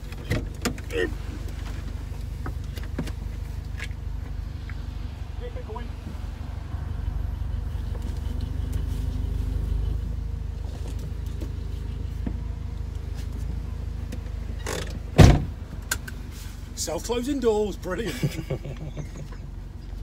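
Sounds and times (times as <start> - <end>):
vehicle engine rumbling: 0.0 - 20.0
vehicle door thud: 14.6 - 15.6.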